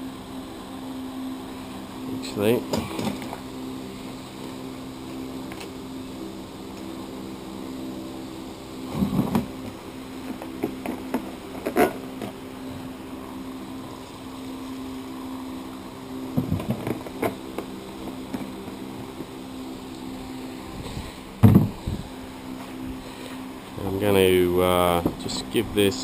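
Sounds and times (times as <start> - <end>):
steady background hum: 0.0 - 26.0
plastic jerry can clunking: 21.4 - 21.8.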